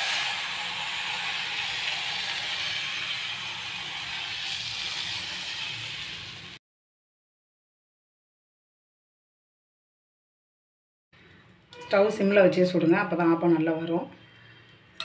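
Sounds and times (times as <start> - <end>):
batter sizzling in pan: 0.0 - 6.6.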